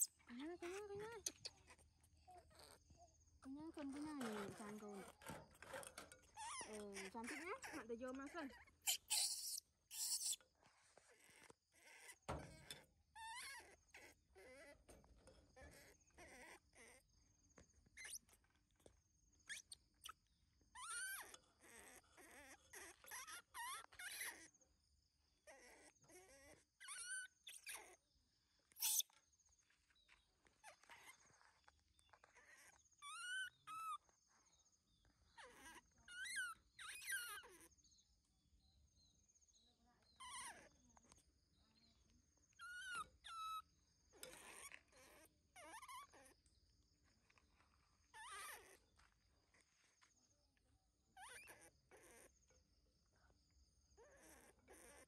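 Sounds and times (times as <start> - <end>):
baby monkey squeaky calls: 0.0 - 2.8, 6.3 - 10.4, 13.2 - 14.8, 18.0 - 18.3, 19.5 - 20.2, 20.8 - 24.5, 25.5 - 28.0, 28.7 - 29.1, 30.6 - 34.0, 35.4 - 37.7, 40.2 - 40.7, 42.6 - 43.6, 44.2 - 46.3, 48.1 - 48.8, 51.2 - 52.3.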